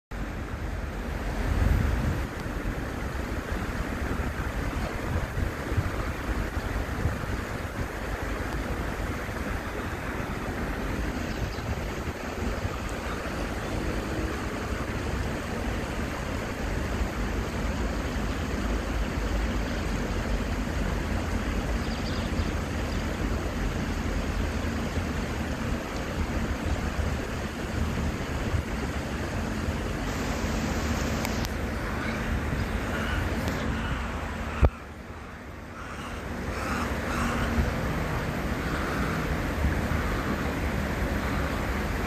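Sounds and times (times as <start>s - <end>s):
shallow stream flowing: 0.1s - 42.0s
wind buffeting microphone: 1.4s - 13.9s.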